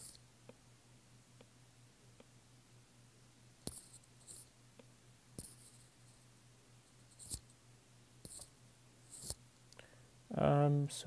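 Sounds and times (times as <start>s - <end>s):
stylus tip scratching: 3.6s - 4.5s, 5.4s - 6.2s, 6.9s - 7.6s, 8.2s - 9.4s.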